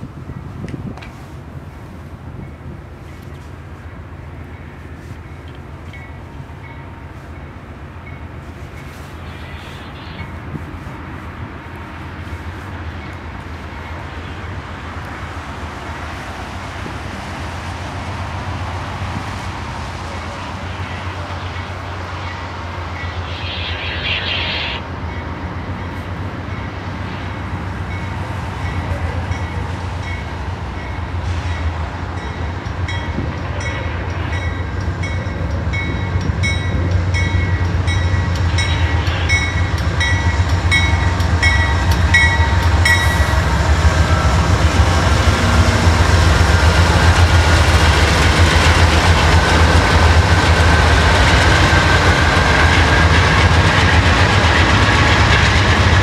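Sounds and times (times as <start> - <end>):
locomotive engine drone: 1.4 - 56.0
thin high squeal: 21.5 - 24.8
locomotive bell ringing: 27.9 - 43.3
steel wheels clattering on rail: 27.9 - 56.0.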